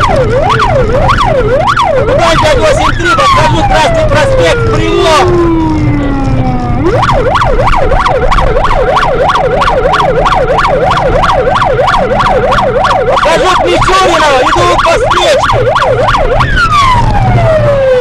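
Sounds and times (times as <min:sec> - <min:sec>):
electronic siren yelping: 0:00.0 - 0:18.0
second siren pattern: 0:00.0 - 0:18.0.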